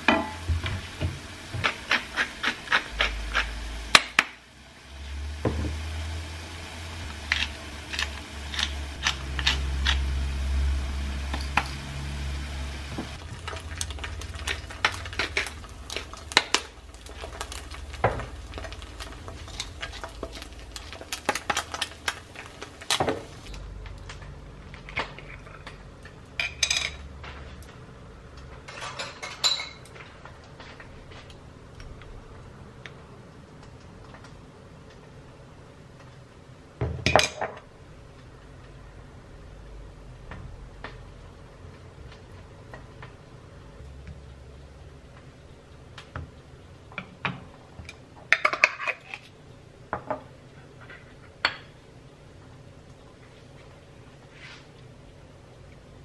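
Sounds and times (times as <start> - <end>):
utensils clinking on pans and dishes: 13.2 - 23.6, 26.4 - 27.1, 28.6 - 30.1.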